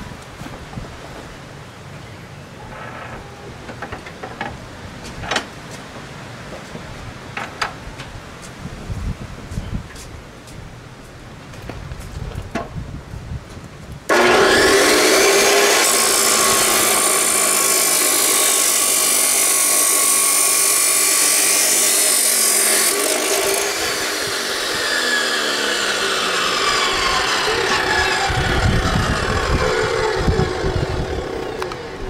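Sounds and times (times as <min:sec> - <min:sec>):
abrasive wheel grinding steel: 0:14.1 - 0:32.0
chop saw motor whining: 0:14.1 - 0:32.0.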